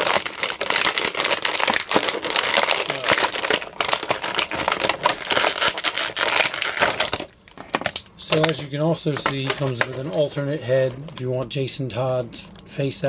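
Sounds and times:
plastic packaging crinkling: 0.0 - 11.3.

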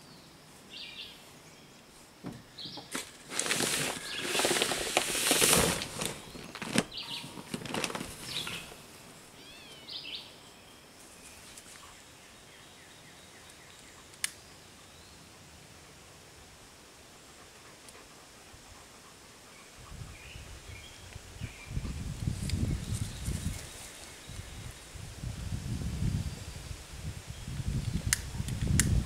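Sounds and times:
birds chirping: 2.4 - 15.3
paper sacks rustling and scraping: 2.9 - 8.8.

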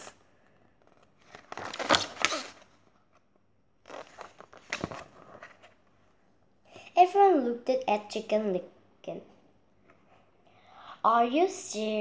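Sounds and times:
book pages rustling and flapping: 0.8 - 5.9.

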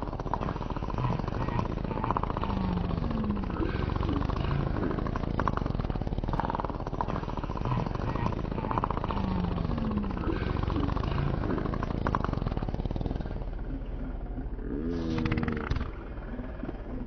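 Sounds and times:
slowed fart sound effect: 14.6 - 16.1.

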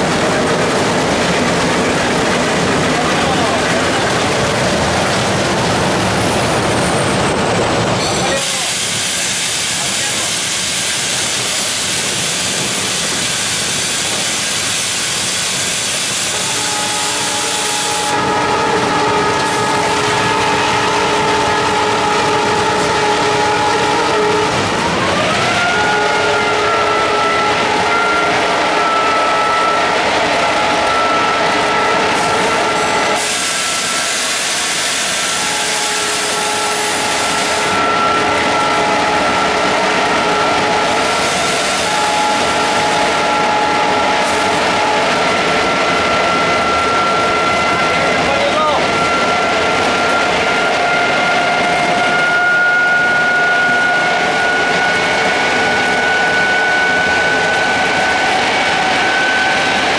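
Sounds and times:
diesel locomotive din: 0.0 - 59.9
multi-tone whine: 0.0 - 59.9
train wind and running noise: 0.0 - 59.9
loud hiss: 8.0 - 21.1, 32.2 - 38.4.

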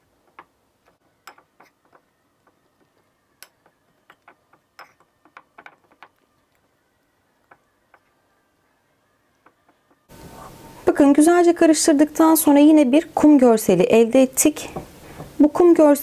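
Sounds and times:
spoon clinking against bowl: 1.3 - 1.7.

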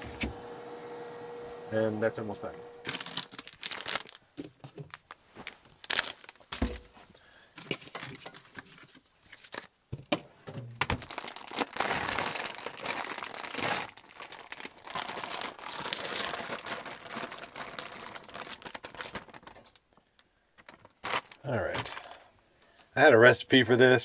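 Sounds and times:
plastic bag crinkling: 2.8 - 7.0, 7.6 - 9.7, 10.8 - 22.3.

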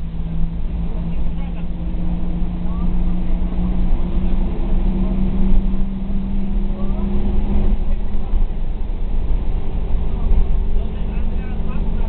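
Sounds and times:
bus diesel engine pulling: 0.0 - 12.0
low rumble: 0.0 - 12.0.

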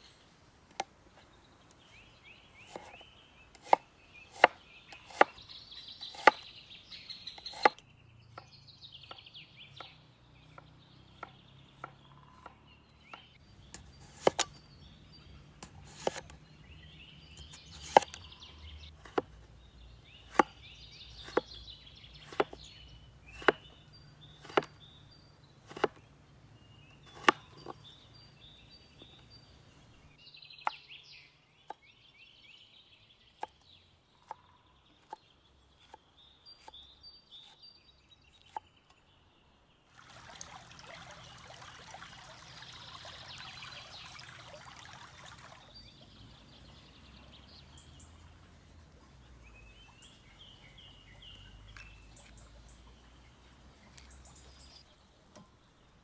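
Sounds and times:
birds chirping: 0.0 - 56.0
cleaver chopping on wooden board: 3.6 - 5.4, 6.1 - 6.4, 9.8 - 14.6, 15.6 - 16.3, 20.2 - 21.6, 22.2 - 22.7, 23.3 - 24.8, 25.7 - 26.0, 27.1 - 27.8.

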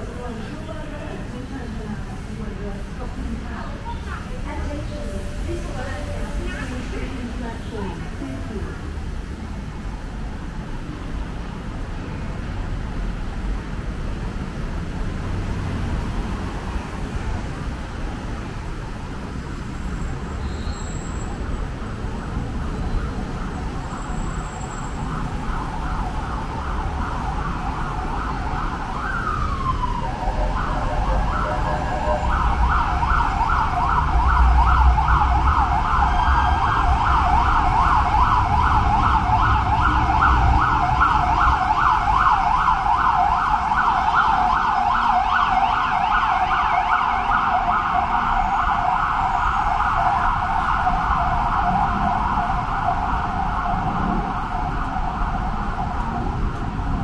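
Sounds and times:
low rumble of road traffic: 0.0 - 57.0
emergency siren rapid yelp: 21.0 - 56.9.

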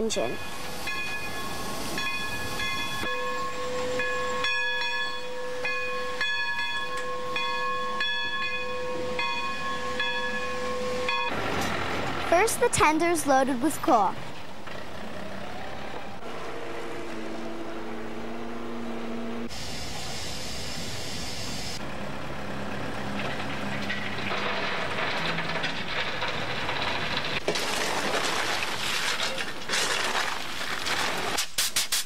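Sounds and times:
diesel engine running: 11.3 - 27.5
coal scraping and hissing: 24.0 - 32.0.

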